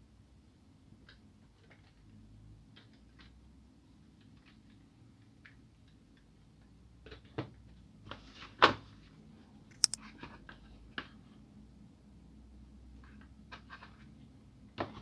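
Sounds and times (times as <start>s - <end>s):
light clicks: 9.7s - 10.0s.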